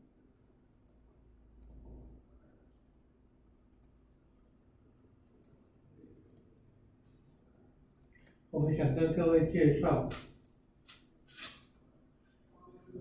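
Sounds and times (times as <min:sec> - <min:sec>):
computer mouse clicks: 0:03.7 - 0:04.0, 0:05.2 - 0:05.6, 0:06.3 - 0:06.5, 0:08.0 - 0:08.4.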